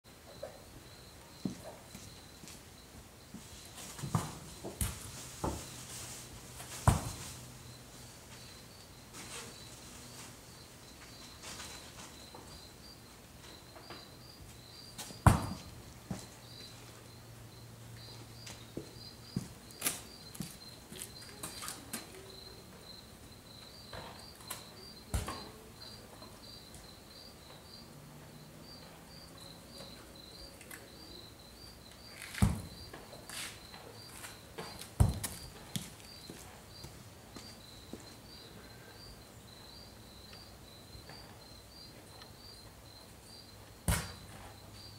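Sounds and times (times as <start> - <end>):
high insect chirping: 0.1 - 4.8, 6.9 - 44.9.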